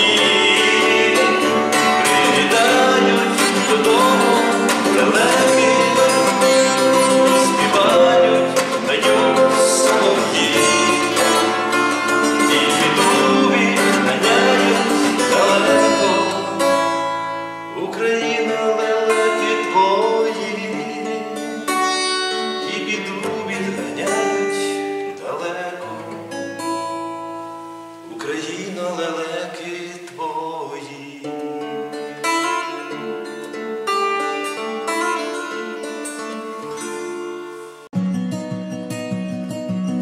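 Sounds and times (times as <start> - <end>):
plucked lute melody: 0.0 - 25.2, 31.5 - 40.0
person singing: 0.0 - 26.4.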